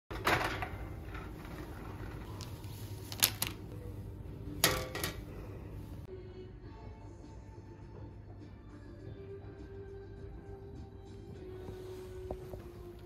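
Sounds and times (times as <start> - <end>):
small objects clicking and knocking: 3.1 - 3.6.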